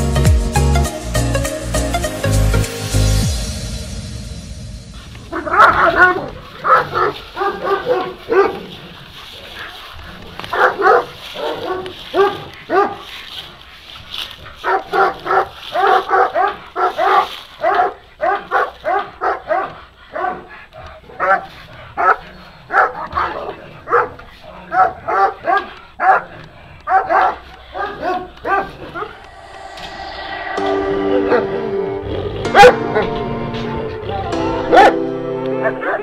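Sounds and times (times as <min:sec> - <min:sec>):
dog barking: 0:05.4 - 0:08.7, 0:10.4 - 0:13.1, 0:14.6 - 0:20.5, 0:21.2 - 0:29.1, 0:34.7 - 0:35.0, 0:35.6 - 0:36.0.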